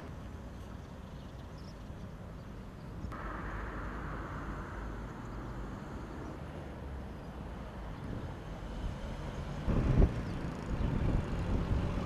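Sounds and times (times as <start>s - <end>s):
distant road traffic: 0.0s - 12.0s
low rumble: 3.1s - 6.9s.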